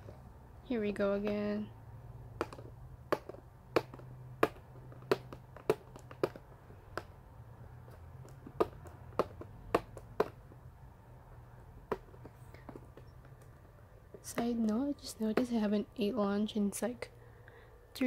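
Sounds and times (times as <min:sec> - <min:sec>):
plastic package clicks and taps: 0:02.4 - 0:07.2.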